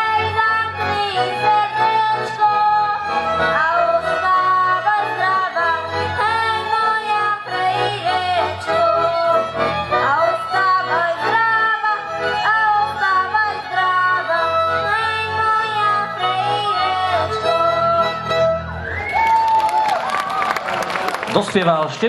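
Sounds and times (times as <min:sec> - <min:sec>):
boy singing into microphone: 0:00.0 - 0:03.0, 0:03.6 - 0:09.5
folk band playing: 0:00.0 - 0:19.5
applause: 0:19.1 - 0:22.0.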